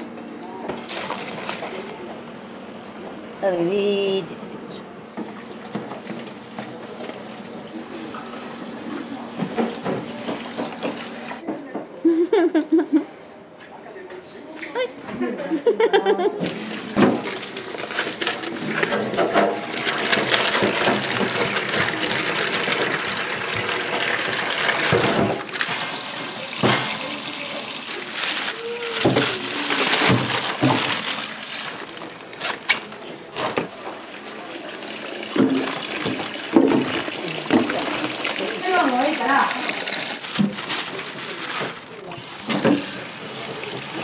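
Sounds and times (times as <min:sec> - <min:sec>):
things clattering in sink: 0:08.0 - 0:11.5, 0:16.4 - 0:44.0
tap running into metal sink: 0:35.3 - 0:38.5.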